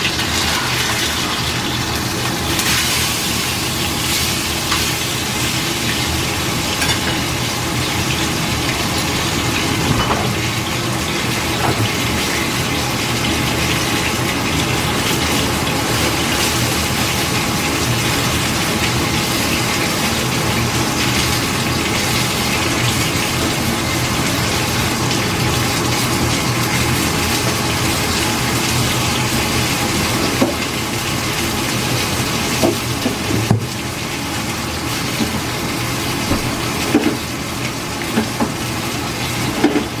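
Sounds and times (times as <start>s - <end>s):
food hissing in pan: 0.2s - 6.3s.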